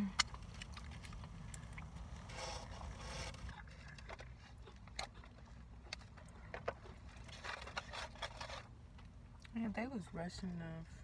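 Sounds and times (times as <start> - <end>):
low rumble inside car: 0.0 - 11.0
chewing: 0.2 - 2.1.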